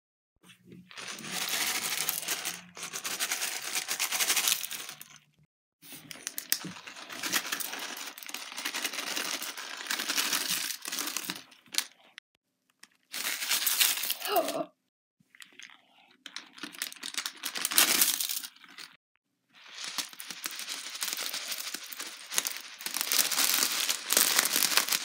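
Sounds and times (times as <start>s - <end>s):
plastic bags crinkling: 0.9s - 5.2s, 6.1s - 12.0s, 15.6s - 18.9s, 19.6s - 25.0s
patter of confetti falling: 19.6s - 25.0s.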